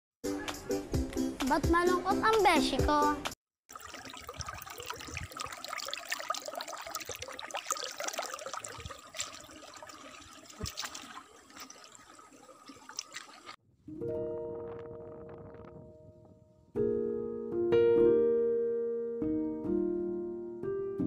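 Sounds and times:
stream trickling over rocks: 3.7 - 13.6
piano music: 13.9 - 21.0.

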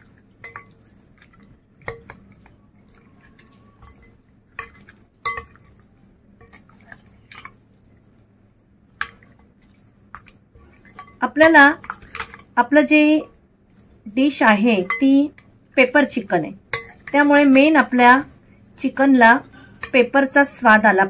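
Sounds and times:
metal spoon clinking on glass bowl: 0.4 - 0.8, 1.8 - 2.2, 3.4 - 5.8, 14.8 - 15.2, 16.7 - 17.2, 19.8 - 20.1.

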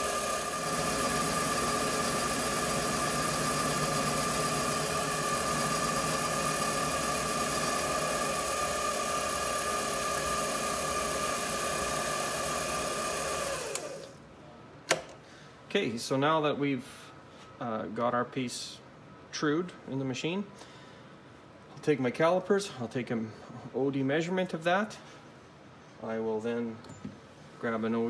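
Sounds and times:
metal lathe motor whine: 0.0 - 14.1.

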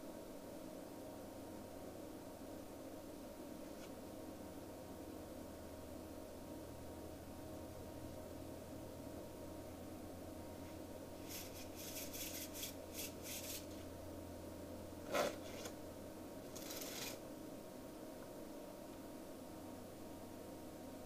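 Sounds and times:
playing cards shuffling: 16.5 - 17.2
rush of cards: 16.6 - 17.2.

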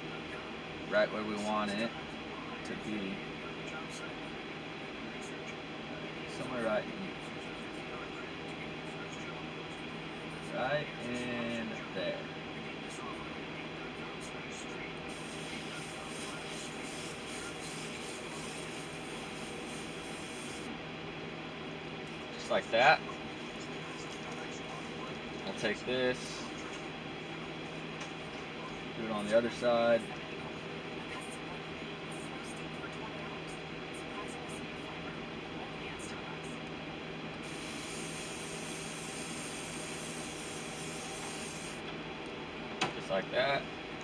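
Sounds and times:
steady low hum: 0.0 - 44.0
airbrush spraying hiss: 15.1 - 20.7, 37.4 - 41.8.

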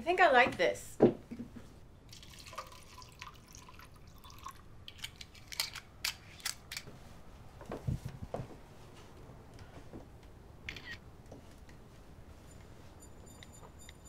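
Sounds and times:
ice cubes clicking and cracking: 4.2 - 5.8.

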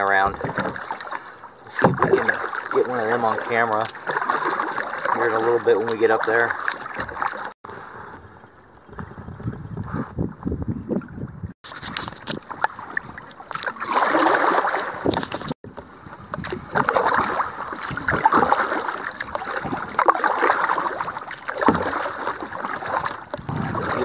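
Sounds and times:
paddle splashing water: 0.0 - 8.1, 11.6 - 24.0.

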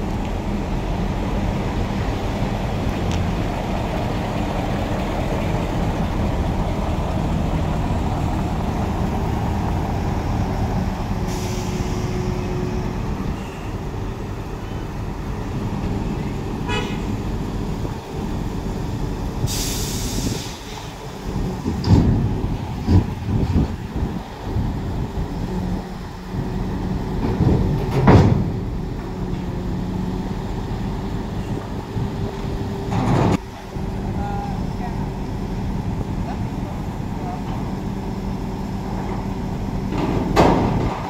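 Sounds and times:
heavy diesel engines running: 0.0 - 41.0
air hiss bursts: 11.3 - 12.0, 19.5 - 20.8.

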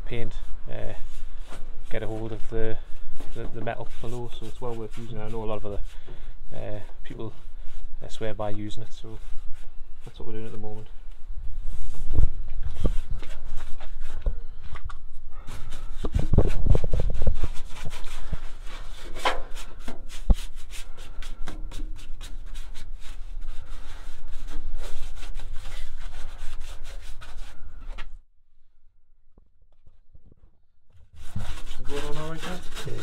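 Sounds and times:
small brush scrubbing on steel: 31.2 - 33.0.

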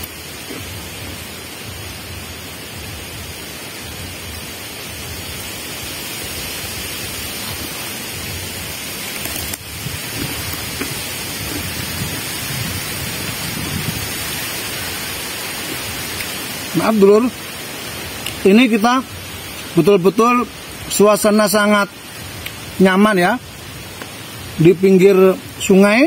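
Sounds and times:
wind rustling palm fronds: 0.0 - 26.0
wind rumble on microphone: 6.7 - 16.2.

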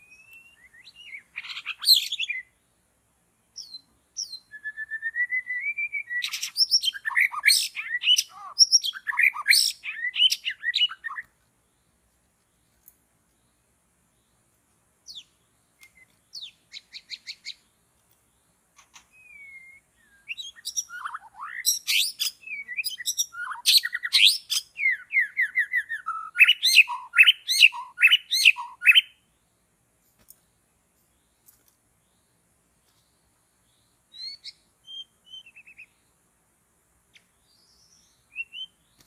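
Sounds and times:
bird song whistles and chatter: 0.0 - 2.5, 3.6 - 11.3, 15.1 - 17.6, 18.8 - 29.2, 34.1 - 36.0, 37.1 - 39.0.

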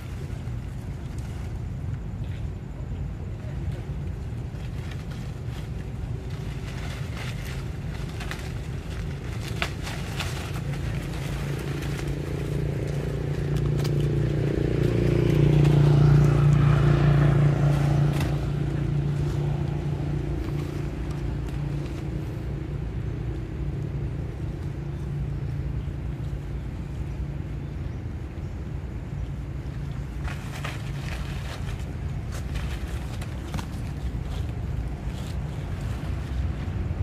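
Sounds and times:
vehicle engine hum passing: 0.0 - 37.0.

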